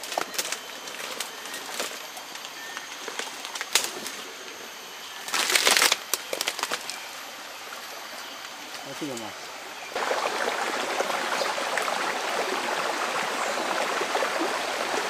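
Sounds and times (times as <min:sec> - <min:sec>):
twigs crackling underfoot: 0:00.0 - 0:09.4
forest stream hissing: 0:00.0 - 0:15.0
leaves and branches rustling: 0:00.0 - 0:15.0.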